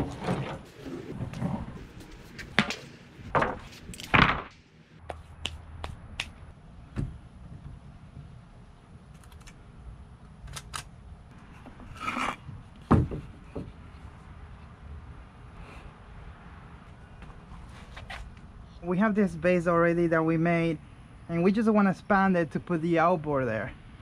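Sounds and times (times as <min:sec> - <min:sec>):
wooden boards scraping: 0:00.0 - 0:04.5
wooden boards knocking: 0:12.9 - 0:13.7.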